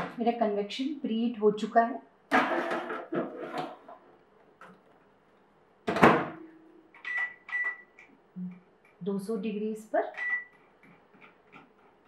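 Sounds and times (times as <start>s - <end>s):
short keypad beeps: 7.0s - 8.0s, 10.1s - 10.5s.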